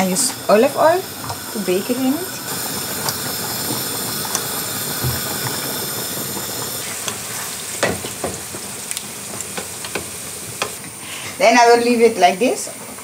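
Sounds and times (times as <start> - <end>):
fish sizzling in frying pan: 0.0 - 13.0.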